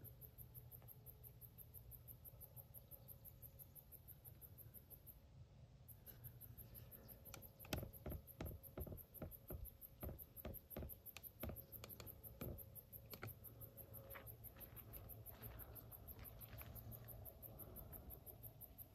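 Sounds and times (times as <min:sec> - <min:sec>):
crickets chirping: 0:00.0 - 0:18.9
close clicks and taps: 0:07.2 - 0:13.4.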